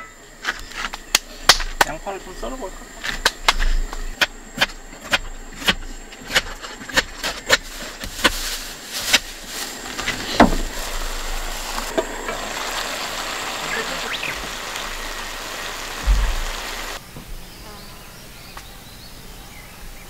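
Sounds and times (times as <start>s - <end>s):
loud thump: 10.4s - 10.7s, 16.0s - 16.6s
food sizzling in a pan: 10.7s - 17.0s.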